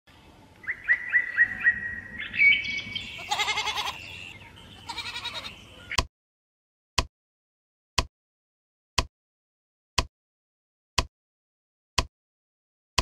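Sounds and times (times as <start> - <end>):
bird chirps: 0.6 - 6.0
quavering bleats: 2.9 - 6.0.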